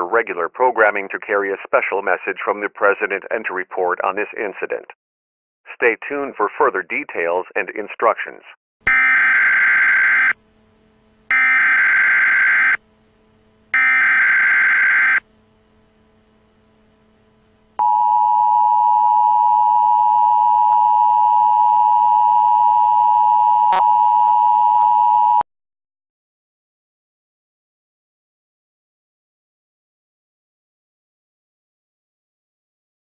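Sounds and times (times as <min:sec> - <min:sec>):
harsh buzzing data bursts: 0:11.3 - 0:12.8, 0:13.7 - 0:15.3.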